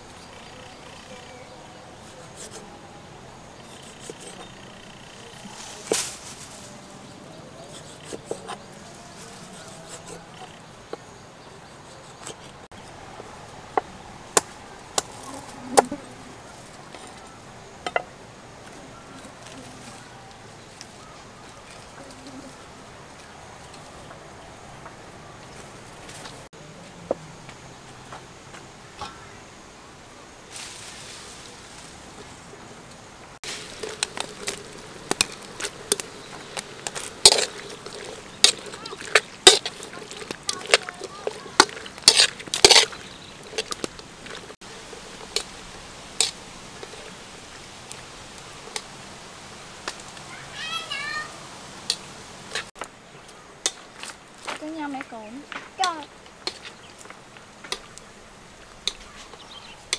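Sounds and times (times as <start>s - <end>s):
steaming wok hissing: 33.4s - 59.9s.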